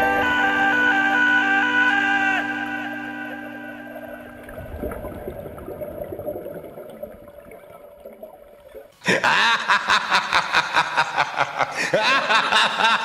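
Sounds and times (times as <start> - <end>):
music: 0.0 - 4.2
underwater bubbling of exhaled air: 2.8 - 9.0.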